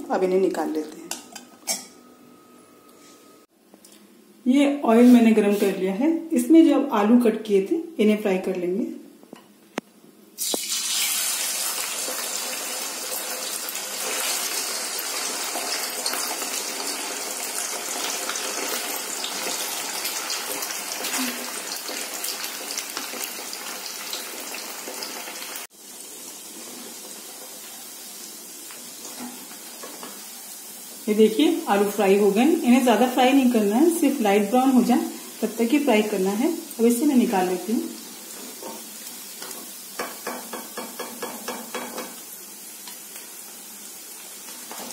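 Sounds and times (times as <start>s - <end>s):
deep-fry sizzle with pops: 9.2s - 44.9s.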